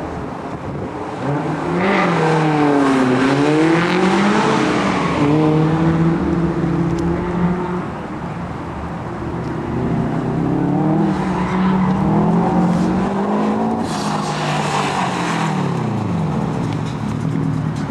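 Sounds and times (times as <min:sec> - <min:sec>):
car engine revving hard: 0:01.2 - 0:07.9.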